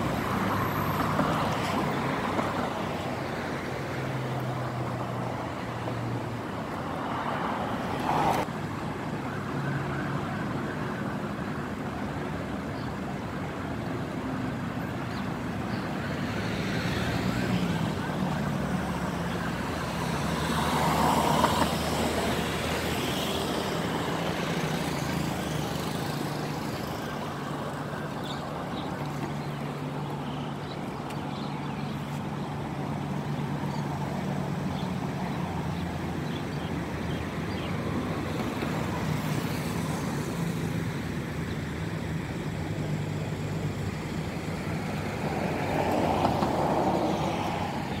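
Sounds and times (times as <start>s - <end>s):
road traffic engine hum: 0.0s - 48.0s.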